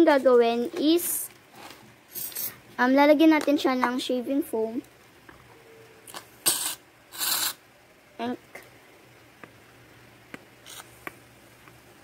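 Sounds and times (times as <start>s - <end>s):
aerosol can hissing: 6.4s - 7.6s.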